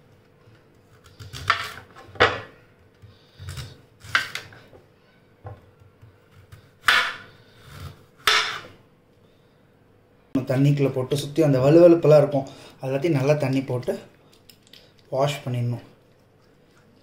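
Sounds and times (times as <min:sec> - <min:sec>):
knife chopping on cutting board: 0:06.5 - 0:07.2, 0:07.8 - 0:08.7.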